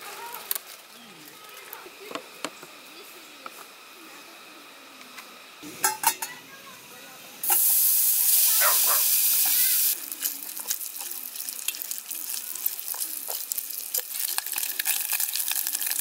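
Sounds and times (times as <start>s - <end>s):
food sizzling in a pan: 5.6s - 6.8s, 7.4s - 16.0s.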